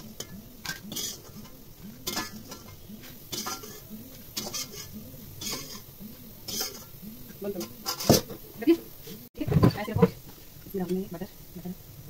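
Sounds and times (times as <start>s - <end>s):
metal spoon clinking on steel plate: 0.2s - 5.9s.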